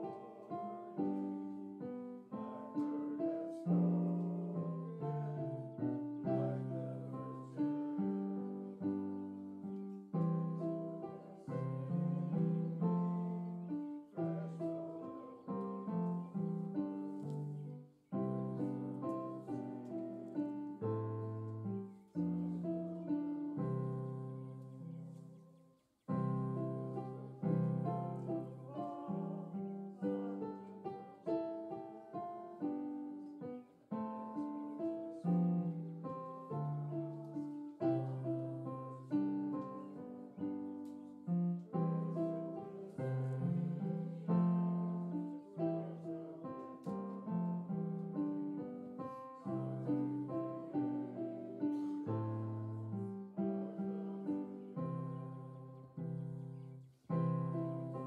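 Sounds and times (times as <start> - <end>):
slow piano music: 0.0 - 58.0.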